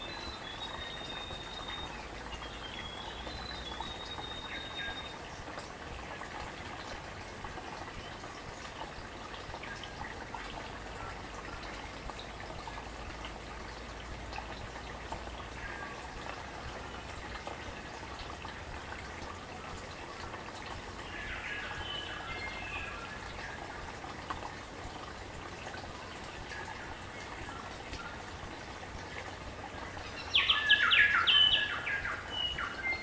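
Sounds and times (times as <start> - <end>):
bird calls: 0.0 - 5.2, 21.0 - 23.6, 30.0 - 33.0
stream babbling over stones: 0.0 - 33.0.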